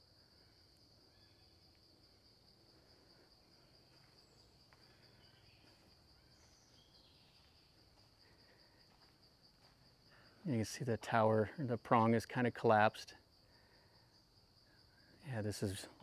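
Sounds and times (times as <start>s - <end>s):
insects droning: 0.0s - 16.0s
faint bird chirps: 1.1s - 1.6s, 3.6s - 7.8s.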